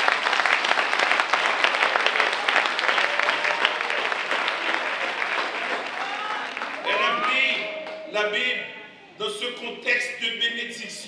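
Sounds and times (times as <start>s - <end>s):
crowd applauding: 0.0s - 8.6s.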